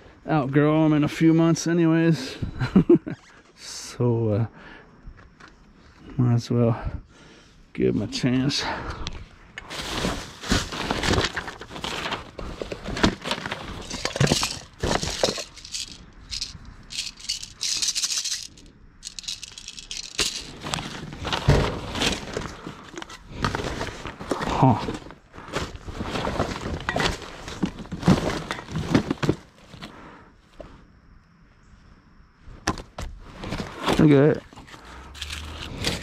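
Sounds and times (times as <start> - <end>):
junk clattering and rattling: 9.7 - 18.4, 19.1 - 29.5.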